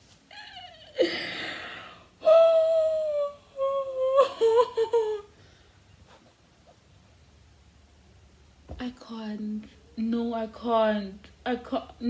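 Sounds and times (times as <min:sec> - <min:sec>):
woman laughing: 0:03.9 - 0:05.2.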